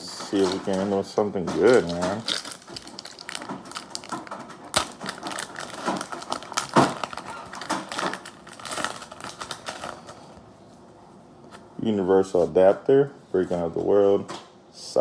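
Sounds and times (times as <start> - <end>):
foil wrapper crinkling and tearing: 0.2 - 10.3
wrapper sharp snaps: 1.7 - 10.1.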